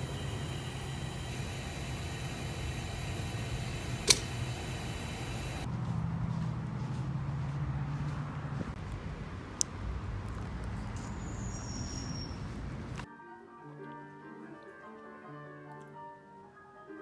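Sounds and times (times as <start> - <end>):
fuel dispenser humming: 0.0 - 5.7
low outdoor hum: 0.0 - 13.1
sharp click: 4.0 - 4.4.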